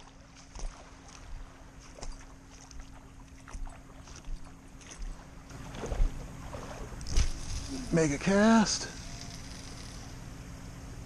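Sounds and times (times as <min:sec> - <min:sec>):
small water splashes at shore: 0:00.0 - 0:07.7
faint steady hum: 0:00.0 - 0:11.0.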